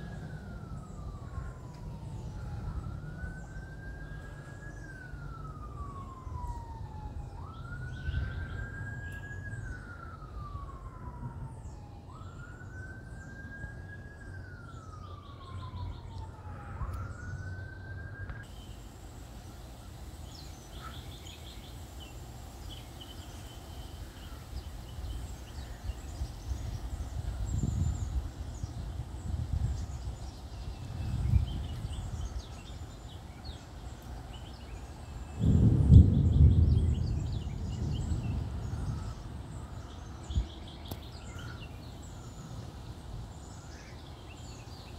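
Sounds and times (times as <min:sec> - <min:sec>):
siren wailing: 0:00.0 - 0:18.7, 0:19.8 - 0:36.7
low wind rumble: 0:00.0 - 0:44.9
birds chirping: 0:11.5 - 0:44.9.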